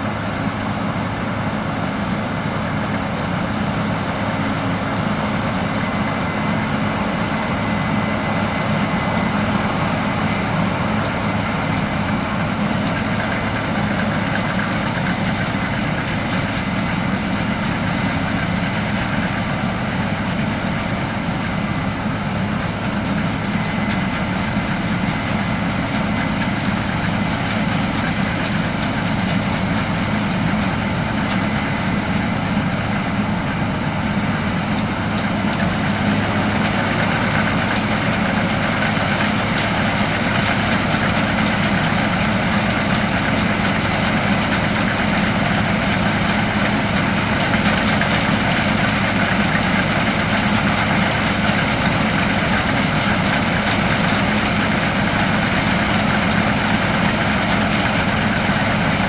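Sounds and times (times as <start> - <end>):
combine harvester drone: 0.0 - 59.0
tractor engine: 0.0 - 59.0.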